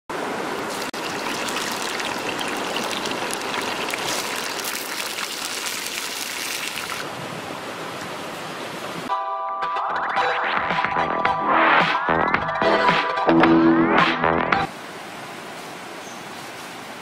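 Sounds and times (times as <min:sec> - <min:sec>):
water splashing in a bowl: 0:00.6 - 0:07.1.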